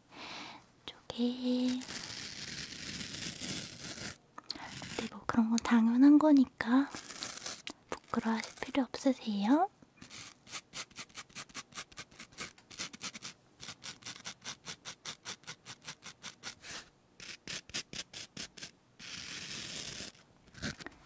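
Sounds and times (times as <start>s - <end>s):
continuous rub: 1.4s - 5.2s, 6.8s - 9.0s, 10.0s - 21.0s
quick scraping strokes: 10.0s - 20.9s.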